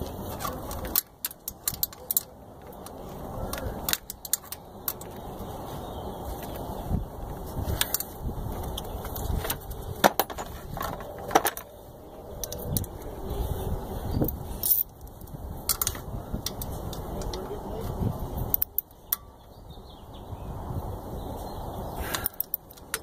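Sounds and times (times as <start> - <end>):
metal tools clinking: 0.0 - 5.3, 7.6 - 11.7, 14.2 - 17.6, 18.4 - 19.4, 22.1 - 23.0.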